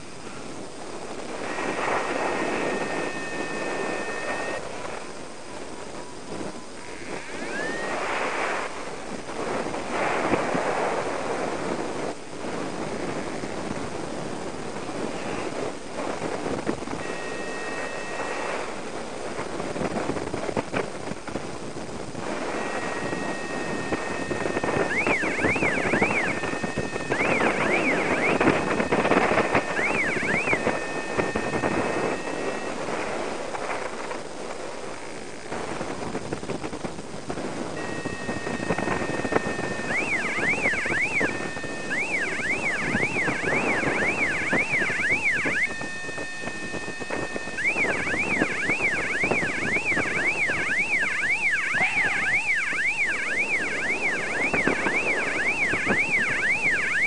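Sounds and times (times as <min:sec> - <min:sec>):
wind rushing over microphone: 0:00.0 - 0:57.0
electronic warbling tone: 0:01.4 - 0:04.7, 0:06.7 - 0:08.5, 0:17.0 - 0:18.8, 0:22.3 - 0:33.1, 0:37.8 - 0:57.0.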